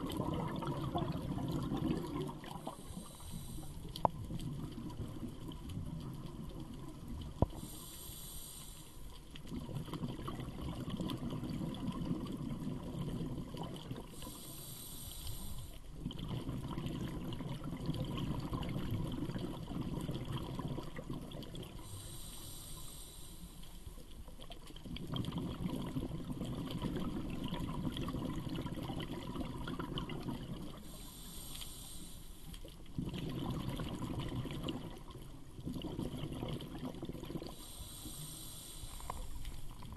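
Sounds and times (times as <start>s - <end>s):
regulator inhale hiss: 2.4s - 4.2s, 7.4s - 9.4s, 14.0s - 15.9s, 21.7s - 24.1s, 30.7s - 32.8s, 37.5s - 39.8s.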